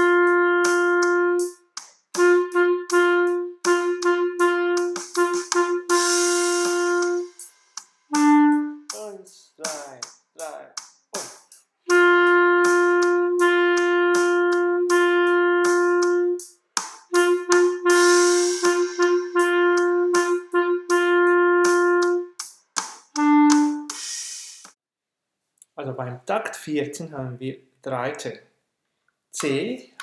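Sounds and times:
clarinet playing march line: 0.0s - 1.6s, 2.2s - 7.5s, 8.1s - 9.2s, 11.9s - 16.5s, 17.1s - 22.4s, 23.2s - 24.0s
steady metronome clicks: 22.7s - 24.0s, 29.0s - 30.0s.

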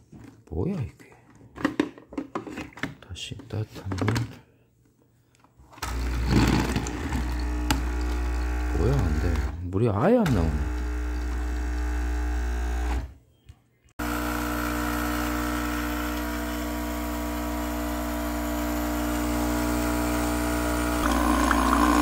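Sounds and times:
coffee machine pump humming: 5.8s - 9.6s, 10.3s - 13.0s, 14.0s - 22.0s.

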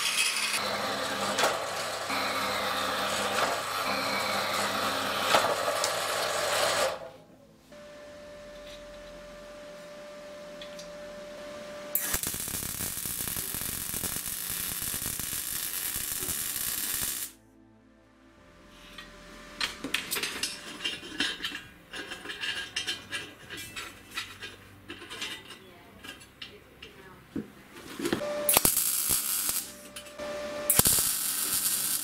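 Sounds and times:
welding arc crackling hiss: 12.0s - 17.4s, 28.4s - 32.0s
metal parts clicking and tapping: 19.6s - 27.0s.

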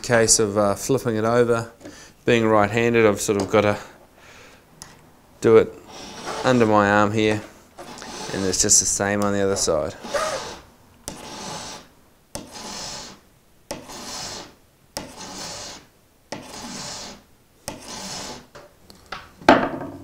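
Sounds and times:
file rasping on steel hook: 5.8s - 7.2s, 7.8s - 18.5s.

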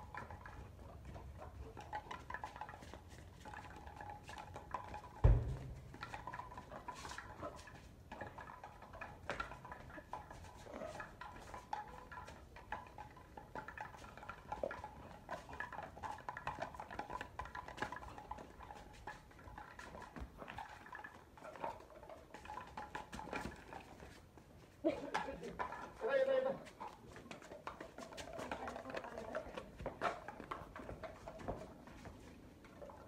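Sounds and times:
dog paws and claws on paving: 0.0s - 33.0s
light knocks: 5.2s - 6.2s.

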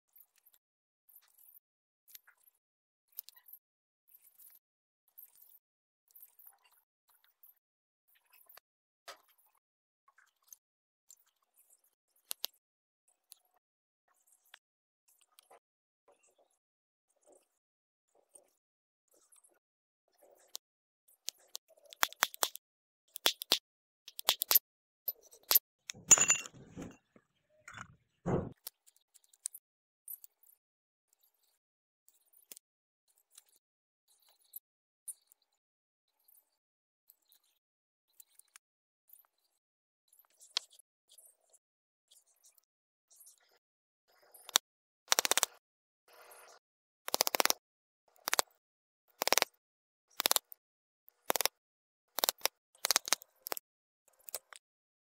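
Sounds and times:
metal clicks and clinks: 23.2s - 24.6s, 25.4s - 27.0s
dull knock: 28.3s - 28.6s.

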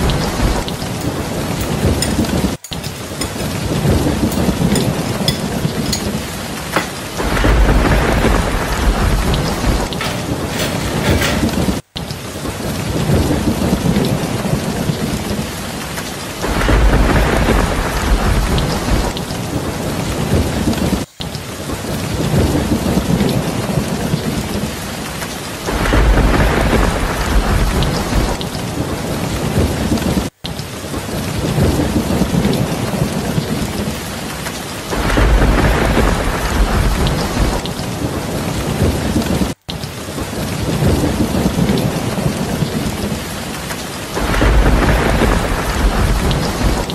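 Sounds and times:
thunder rumble: 0.0s - 11.8s, 12.4s - 24.8s, 25.6s - 30.3s, 30.9s - 46.9s
steady rain: 0.0s - 46.9s.

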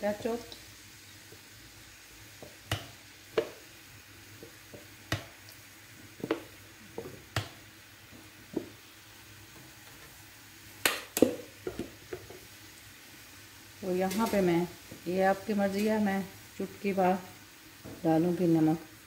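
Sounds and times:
sauce sizzling in pan: 0.0s - 19.0s
spoons knocking on frying pan: 2.4s - 3.6s, 6.2s - 7.6s, 10.8s - 12.4s.

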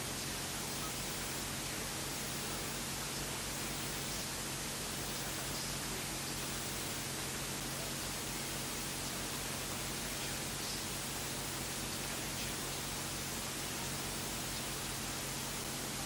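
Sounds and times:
faint low hum: 0.0s - 16.0s
static hiss: 0.0s - 16.0s.

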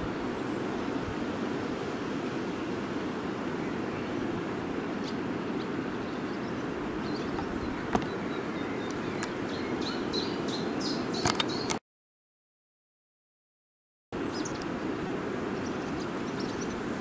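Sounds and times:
small birds chirping: 5.0s - 11.8s, 14.2s - 17.0s
sharp click: 11.2s - 11.8s.

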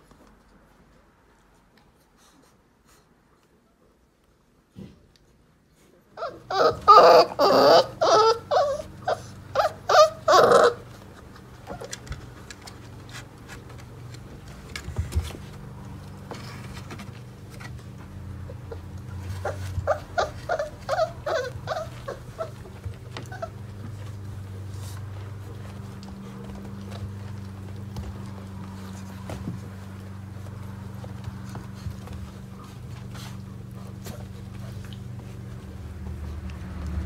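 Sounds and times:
puppies whining and crying: 6.2s - 13.1s, 16.9s - 37.0s.

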